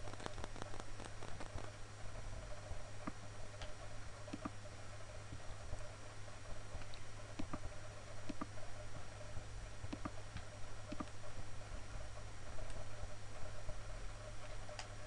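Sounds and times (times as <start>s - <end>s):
steady low hum: 0.0s - 15.0s
computer mouse clicking: 3.0s - 4.6s, 6.8s - 8.5s, 9.8s - 11.2s.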